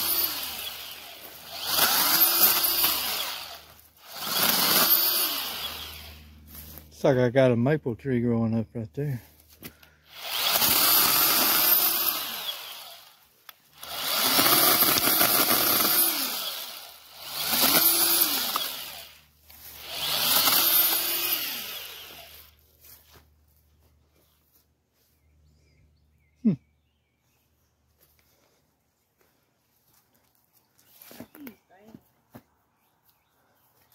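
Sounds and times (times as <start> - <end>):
pruning chainsaw cutting: 0.0 - 6.9, 9.6 - 22.6.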